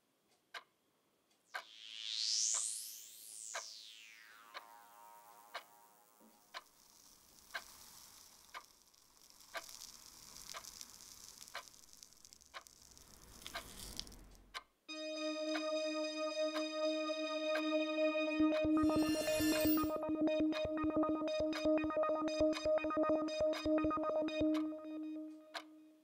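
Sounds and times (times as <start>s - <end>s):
sustained electronic tone: 1.6s - 6.5s, 14.9s - 26.0s
faint airy hiss: 6.3s - 14.4s
sharp ticks: 6.5s - 14.7s, 18.6s - 25.8s.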